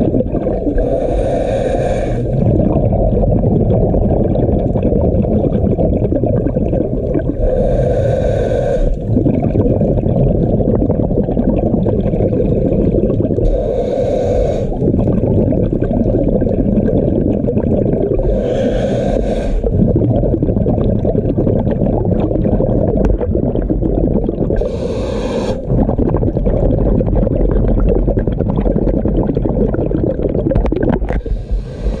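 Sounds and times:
muffled rumble of water: 0.0s - 32.0s
hissing regulator breath: 0.8s - 2.4s, 7.4s - 9.1s, 13.4s - 14.8s, 18.2s - 19.8s, 24.6s - 25.7s, 31.2s - 32.0s.

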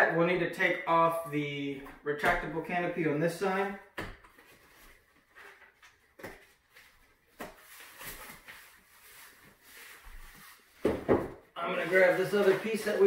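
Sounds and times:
nylon fabric rustling: 6.4s - 10.9s, 11.6s - 13.0s.

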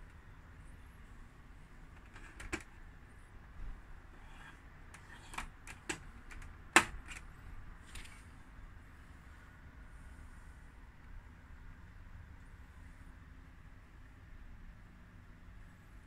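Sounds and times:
radio antenna clicking: 2.0s - 2.7s.

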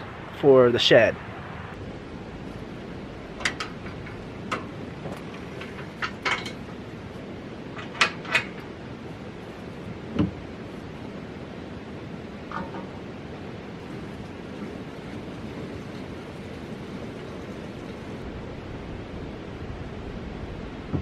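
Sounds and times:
steady background hiss: 0.0s - 21.0s
engine door clicks and clunks: 3.3s - 6.7s.

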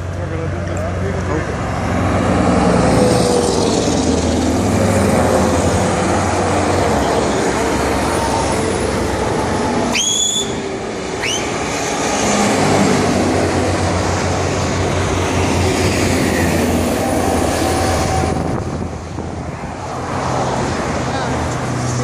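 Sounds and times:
motorway traffic passing: 0.0s - 22.0s
short high squeals: 9.9s - 10.6s.

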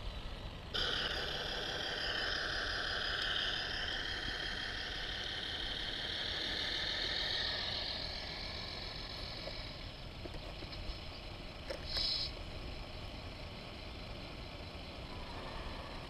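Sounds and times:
toy truck engine sound: 0.0s - 16.0s
short hiss: 11.8s - 12.4s.

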